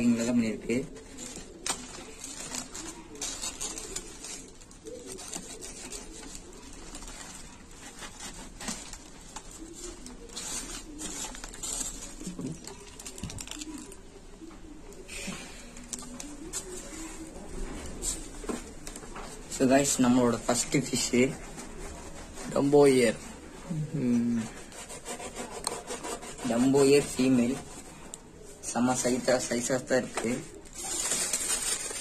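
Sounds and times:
cardboard parcel crinkling: 0.0 - 14.0, 28.9 - 32.0
packing pieces rustling: 1.0 - 14.0, 30.3 - 32.0.

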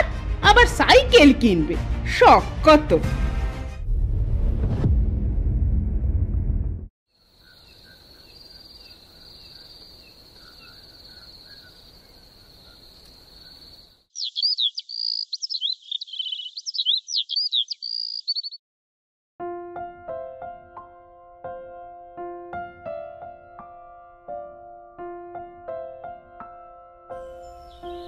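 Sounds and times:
crickets chirring: 7.2 - 18.6
songbird singing: 7.2 - 18.6, 27.2 - 28.0.

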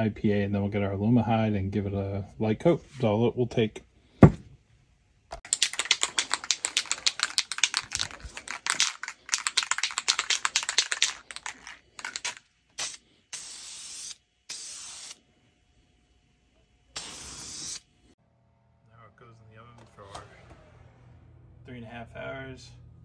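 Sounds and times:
spray can mixing ball rattling: 5.4 - 15.2, 17.0 - 17.8
spray can hissing: 5.5 - 15.2, 16.9 - 17.9.

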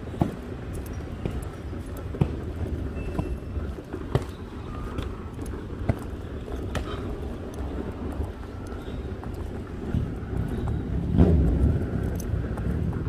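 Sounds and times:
road traffic rumble: 0.0 - 13.0
wind on microphone: 6.2 - 13.0.

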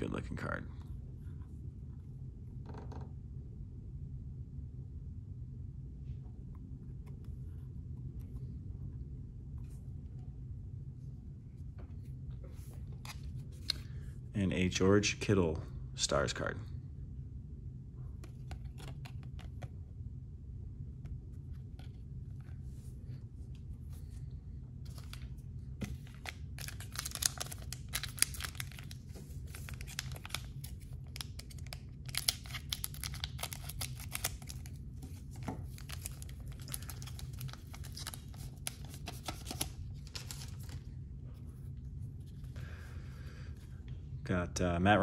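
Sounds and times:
foil packs tearing and crinkling: 26.0 - 34.7.

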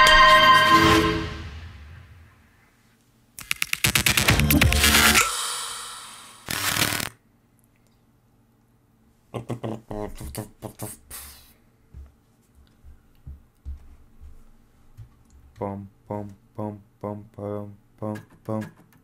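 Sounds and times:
hiss: 5.2 - 7.1
short vocal-like beats: 9.3 - 11.5, 15.5 - 18.9.

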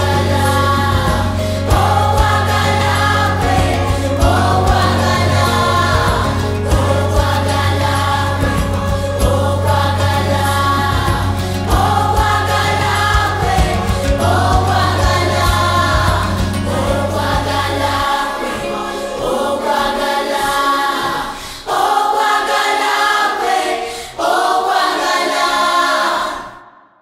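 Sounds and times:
low bass: 0.0 - 18.3
children's choir singing: 0.0 - 26.8.

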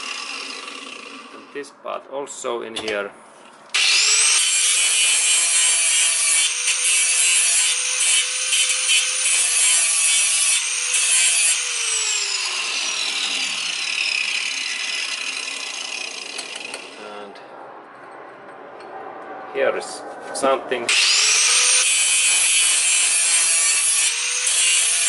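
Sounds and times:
angle grinder grinding metal: 0.0 - 1.6, 3.8 - 17.1, 20.9 - 25.0.

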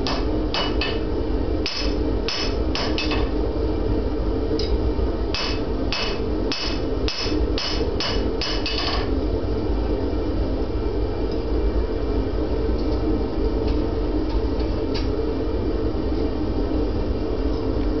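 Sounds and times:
hammer striking steel on anvil: 0.0 - 1.0, 1.6 - 3.3, 5.4 - 9.1.

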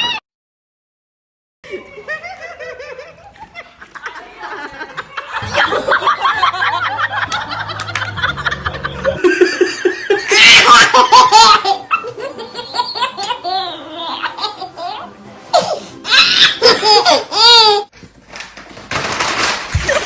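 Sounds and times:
person laughing: 4.7 - 13.2
baby laughing hard: 5.4 - 17.9.

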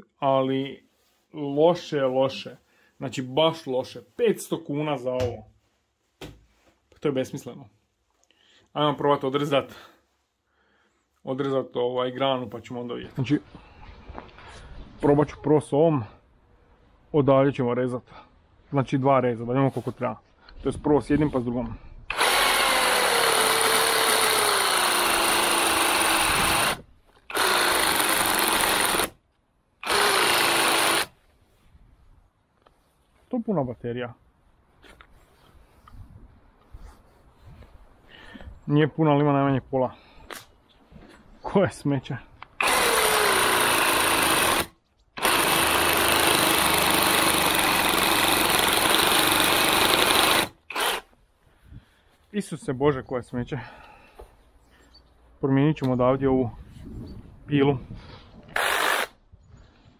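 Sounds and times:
reciprocating saw cutting wood: 22.1 - 29.2, 29.8 - 31.2, 42.6 - 51.1, 58.5 - 59.2
reciprocating saw cutting branch: 42.6 - 51.1.

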